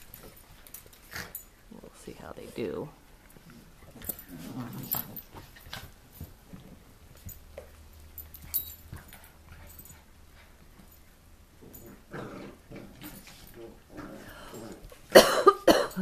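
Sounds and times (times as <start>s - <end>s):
dogs knocking and scuffling: 3.3s - 10.0s.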